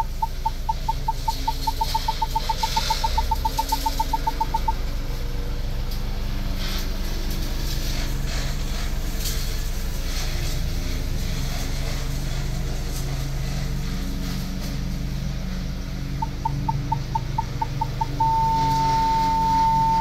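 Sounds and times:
parking sensor beeps: 0.0 - 4.8, 16.2 - 20.0
engine low hum: 0.0 - 20.0.

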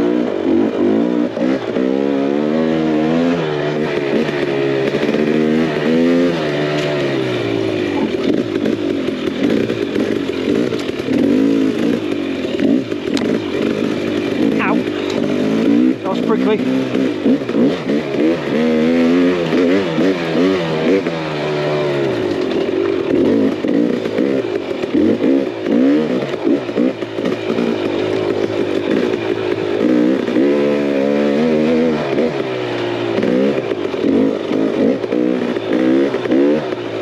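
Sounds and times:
dirt bike engine revving: 0.0 - 37.0.

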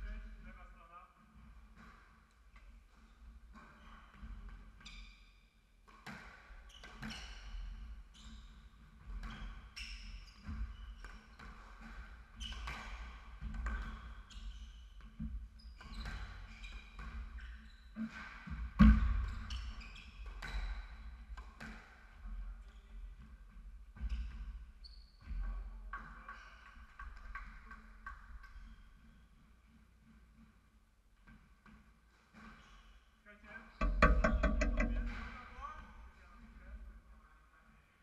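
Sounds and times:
sneakers squeaking on court: 19.0 - 21.7
ball thudding off walls: 33.8 - 35.4.

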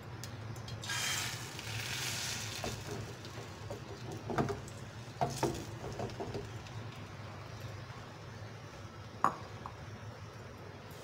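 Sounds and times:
egg sizzling in hot oil: 0.5 - 6.8.

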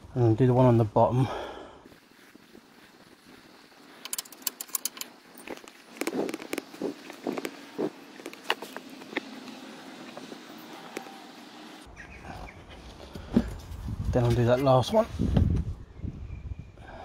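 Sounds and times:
metallic clicks of hand tools: 4.0 - 5.1.

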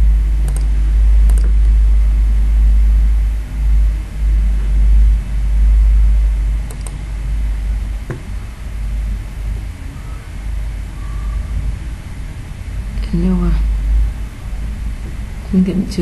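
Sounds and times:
loud low rumble: 0.0 - 16.0
computer mouse clicks: 0.4 - 1.8, 6.6 - 7.0.

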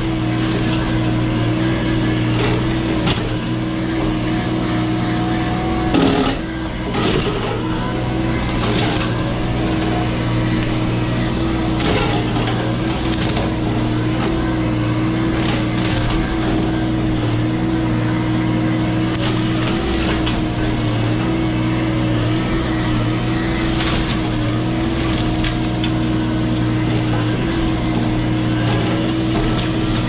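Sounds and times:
brush cutter mulching: 0.0 - 30.0
excavator engine and hydraulics: 0.0 - 30.0
brush and wood cracking: 18.7 - 21.4, 22.3 - 30.0.

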